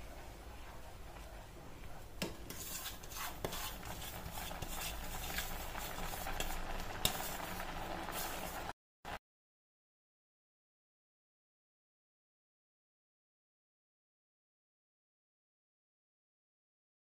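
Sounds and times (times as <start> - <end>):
milk bubbling: 1.0 - 8.7
wooden spatula scraping a pan: 2.2 - 8.7.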